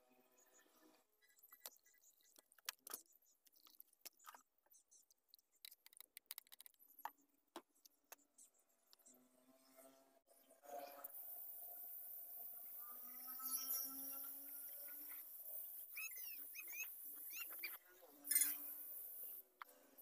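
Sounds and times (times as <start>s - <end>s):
plastic bottles clicking and tapping: 5.2s - 8.2s.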